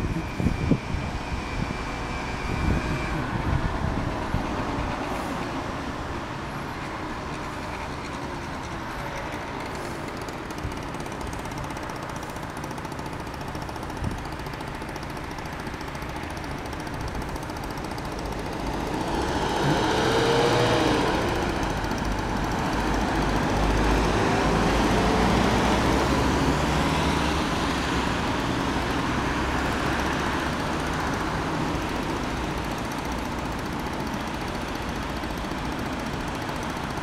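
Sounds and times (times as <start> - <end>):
cars driving past: 18.6 - 31.2.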